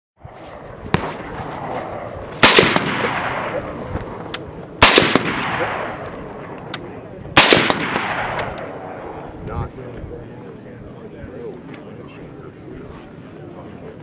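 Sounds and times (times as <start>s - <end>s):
suppressed rifle shots: 0.9s - 3.8s, 4.8s - 6.8s, 7.4s - 9.0s.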